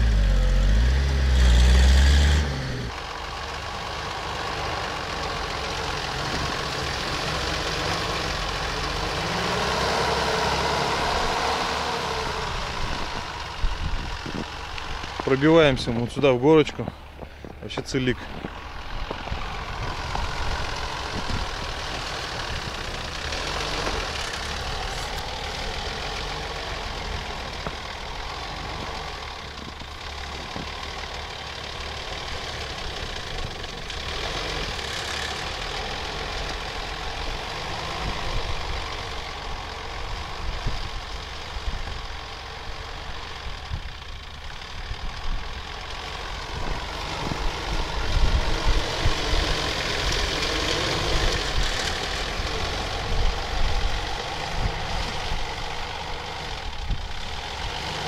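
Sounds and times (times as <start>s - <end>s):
off-road vehicle engine under load: 0.0s - 58.0s.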